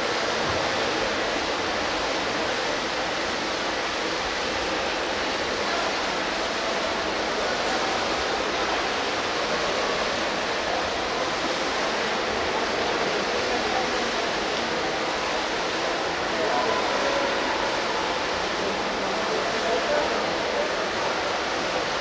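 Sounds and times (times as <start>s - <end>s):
voices around pool: 0.0s - 22.0s.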